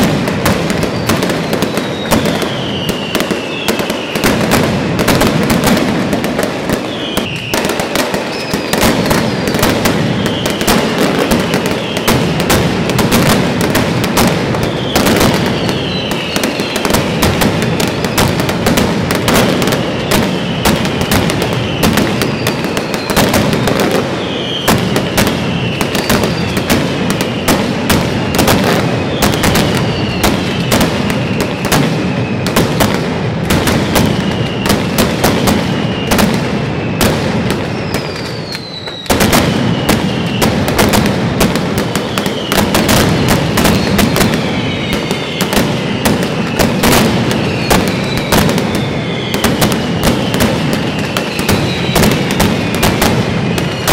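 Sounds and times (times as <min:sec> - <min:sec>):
firecrackers banging: 0:00.0 - 0:53.9
falling whistles: 0:00.8 - 0:04.4, 0:06.7 - 0:12.2, 0:14.6 - 0:17.0, 0:19.9 - 0:32.6, 0:34.0 - 0:35.0, 0:35.8 - 0:40.6, 0:41.9 - 0:42.9, 0:43.6 - 0:53.9.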